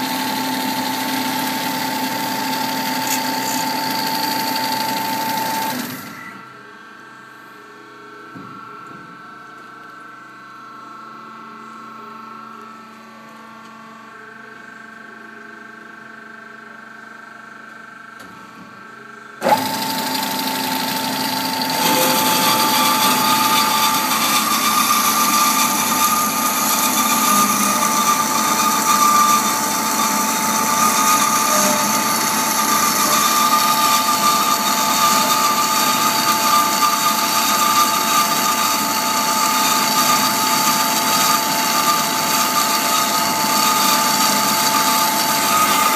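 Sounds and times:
bandsaw whining cutting metal: 0.0 - 6.4, 19.4 - 45.9.

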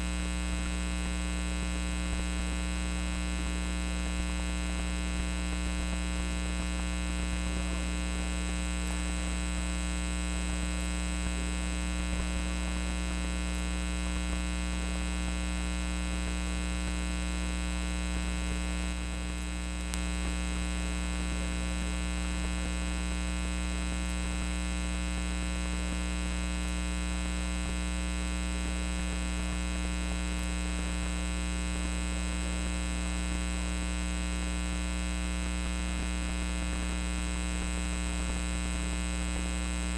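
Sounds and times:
electrical mains hum: 0.0 - 39.9
faint ticks: 8.4 - 9.3, 10.4 - 11.4, 13.4 - 14.4, 18.7 - 24.6, 25.8 - 31.2.

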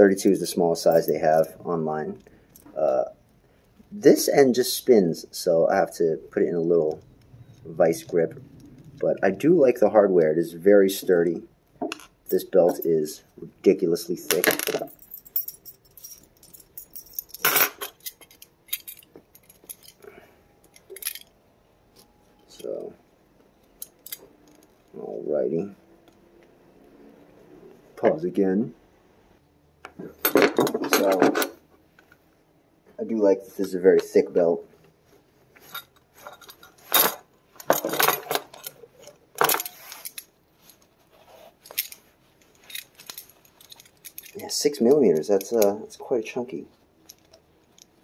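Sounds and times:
metal belt buckle clinking: 14.4 - 22.9, 23.6 - 24.9, 35.6 - 40.9, 41.6 - 45.8, 47.0 - 48.0.

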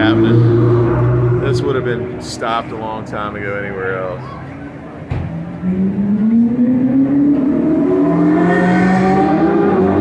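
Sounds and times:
sports car engine accelerating: 0.0 - 2.7, 5.3 - 10.0.

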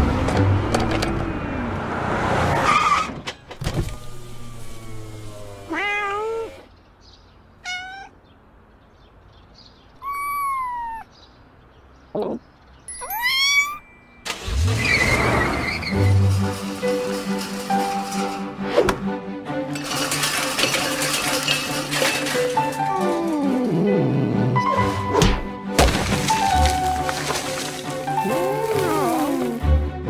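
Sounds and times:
car passing by: 0.0 - 2.8
cat meowing: 5.7 - 6.7, 7.6 - 8.2, 10.0 - 11.1, 12.9 - 13.9.

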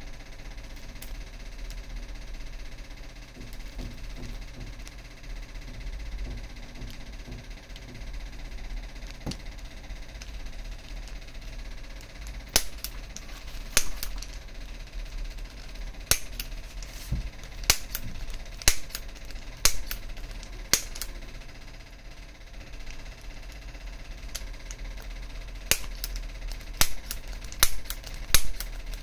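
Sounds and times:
spring plunger snaps: 12.2 - 14.4, 16.0 - 16.6, 25.7 - 29.0.

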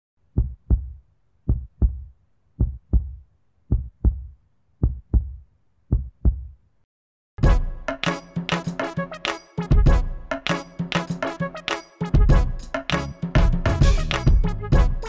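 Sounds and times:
heartbeat thumps: 0.4 - 6.6.

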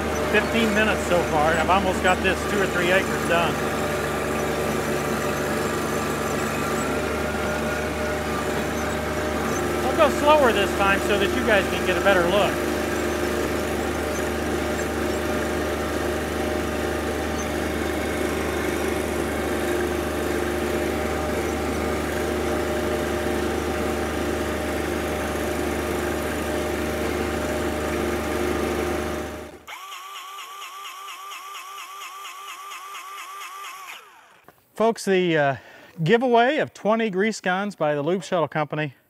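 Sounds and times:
tractor diesel engine running: 0.0 - 29.9.

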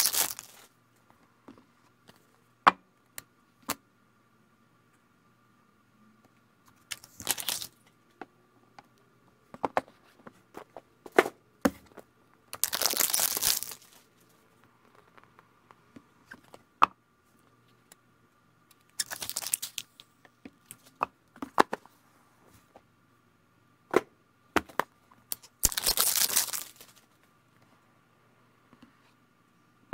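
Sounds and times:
plastic wrapping crinkling: 0.0 - 0.7, 6.9 - 7.8, 12.5 - 14.1, 19.0 - 20.0, 25.3 - 27.0.

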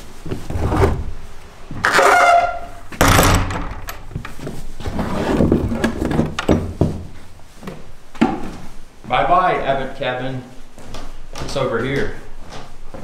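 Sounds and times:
footsteps on wooden floorboards: 4.0 - 8.7, 10.7 - 13.0.

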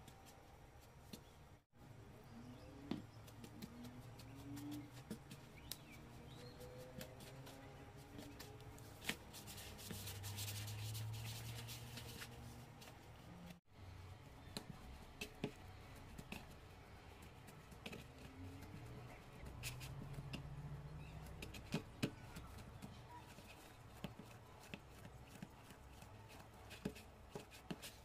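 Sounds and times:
hands kneading dough: 2.6 - 28.0.

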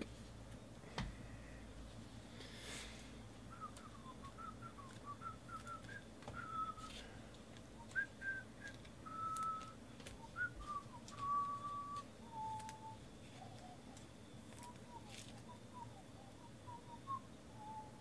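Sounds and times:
man whistling a tune: 3.5 - 7.0, 7.8 - 13.8, 14.6 - 18.0.

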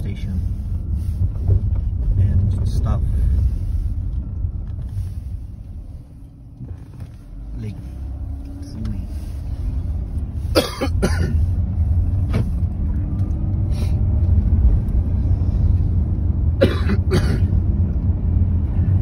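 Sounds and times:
car road and engine rumble: 0.0 - 19.0
person coughing: 10.5 - 11.5, 16.6 - 17.5.

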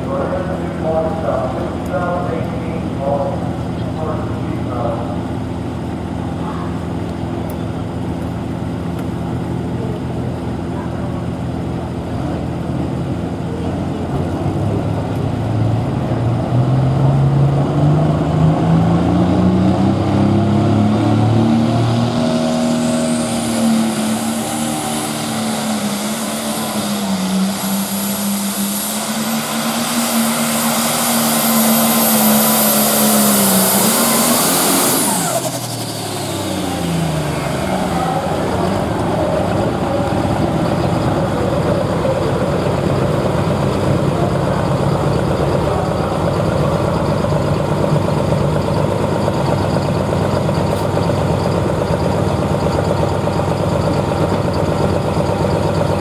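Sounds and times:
high whine: 0.0 - 56.0
tractor engine at full throttle: 0.0 - 56.0.

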